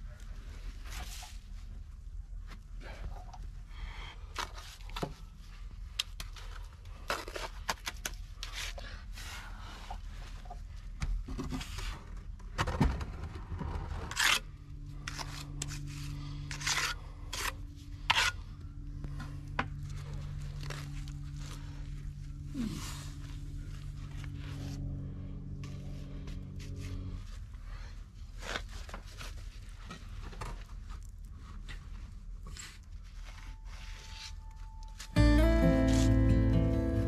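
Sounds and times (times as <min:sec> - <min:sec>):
steady low hum: 0:08.2 - 0:37.0.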